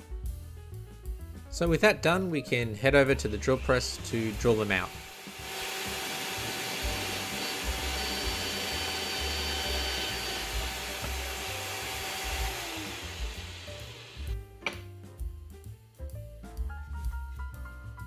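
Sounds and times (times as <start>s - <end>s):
drill press motor humming: 4.0s - 14.4s.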